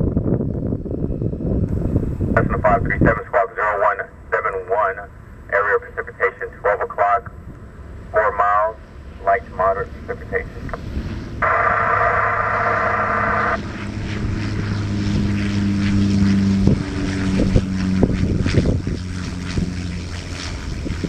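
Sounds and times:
propeller plane droning: 0.0 - 21.0
buzzing burst: 11.0 - 20.9.

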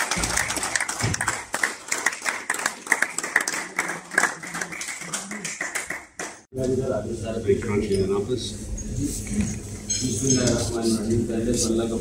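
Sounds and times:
people clapping: 0.0 - 6.5.

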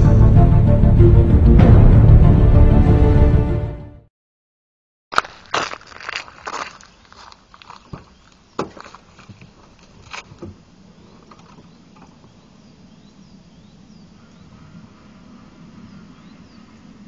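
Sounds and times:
footsteps on gravel: 5.1 - 11.7.

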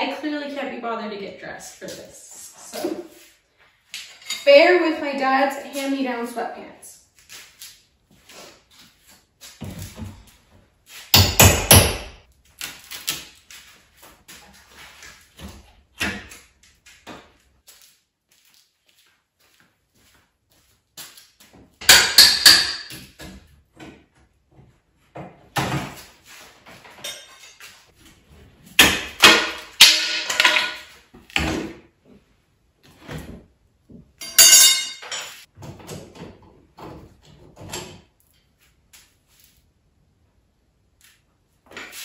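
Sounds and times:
drywall banging and cracking: 28.7 - 31.9.

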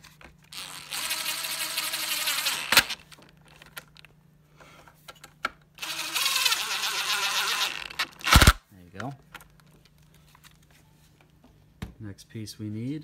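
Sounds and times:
impact driver driving screws: 0.5 - 3.0, 5.8 - 8.6.

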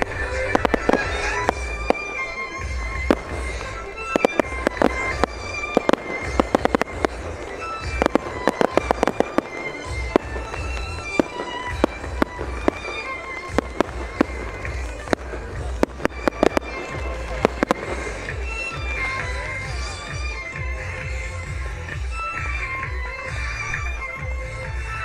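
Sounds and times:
firework shells bursting: 0.0 - 19.8
music playing: 0.0 - 25.0.

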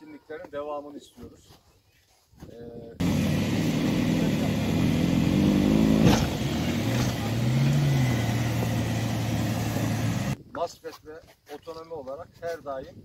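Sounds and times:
engine revving under load: 3.0 - 10.4.

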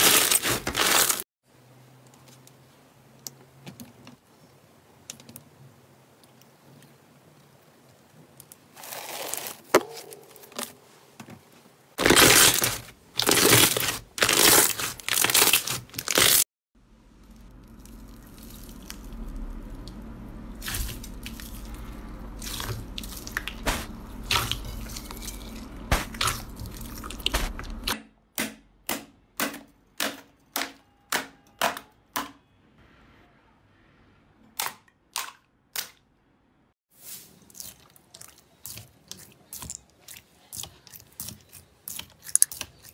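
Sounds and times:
slime crackling: 12.0 - 16.4
low steady hum: 16.8 - 28.0.

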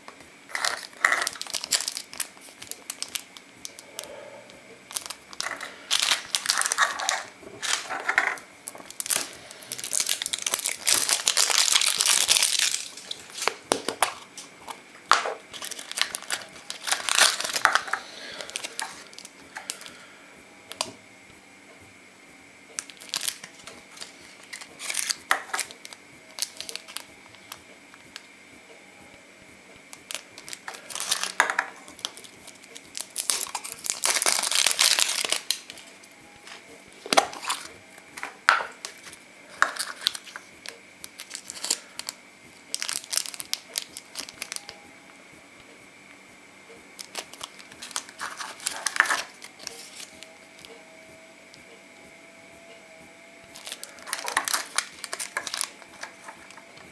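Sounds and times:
plastic wrappers crinkling and tearing: 0.5 - 4.2, 4.8 - 20.0, 20.7 - 21.0, 22.8 - 28.2, 29.9 - 44.8, 47.0 - 50.8, 53.4 - 56.9
plastic capsules clicking: 53.6 - 56.8.

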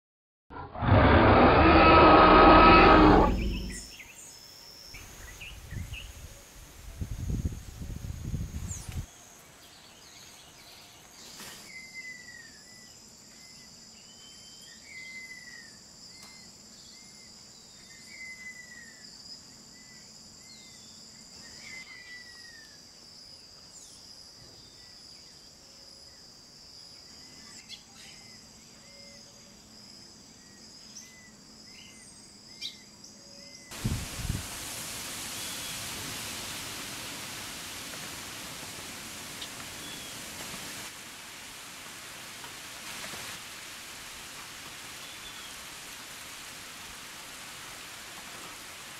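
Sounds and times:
loud rush of noise: 0.8 - 3.8
insects buzzing: 0.8 - 10.4
bird calling: 0.9 - 3.9.

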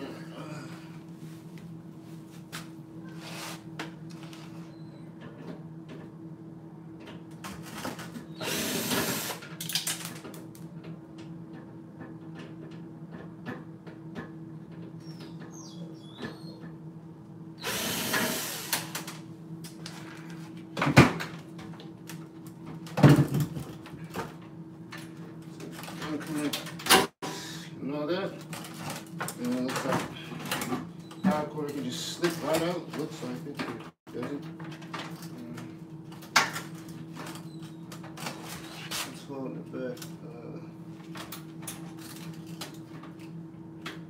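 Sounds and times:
cordless drill running: 8.4 - 9.4, 17.6 - 19.0.

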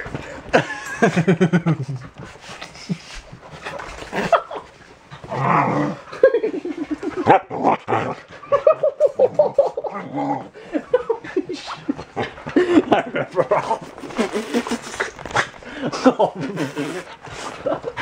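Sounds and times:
rustling and handling noise: 11.5 - 16.4.

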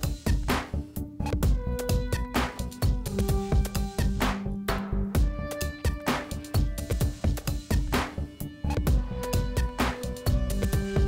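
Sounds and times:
background music with drum beat: 0.0 - 11.0.

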